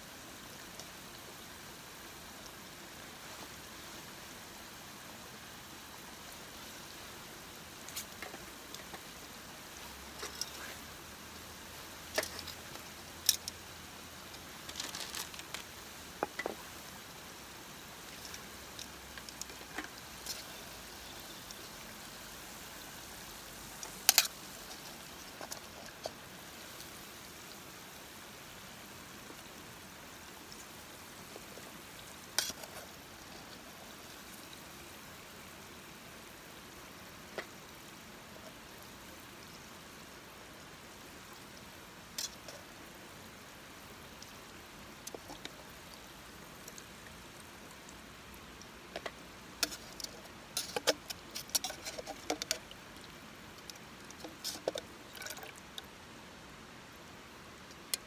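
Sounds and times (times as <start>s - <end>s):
oil sizzling: 5.4s - 35.0s, 41.0s - 55.8s.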